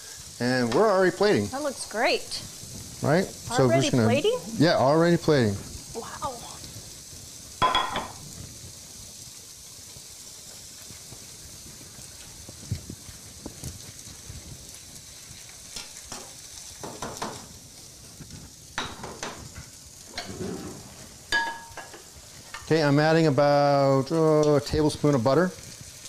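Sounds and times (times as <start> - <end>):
food sizzling in pans: 0.0 - 26.0
spatula scraping a saucepan: 20.1 - 21.9.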